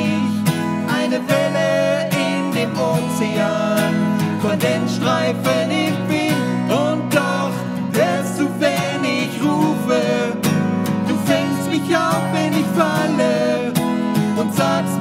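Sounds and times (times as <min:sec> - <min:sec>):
acoustic guitar strumming: 0:00.0 - 0:15.0
man and woman singing: 0:00.0 - 0:15.0.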